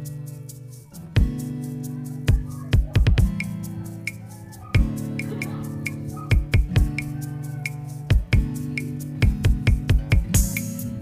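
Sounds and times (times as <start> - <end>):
electronic music with drum beat: 0.0 - 11.0.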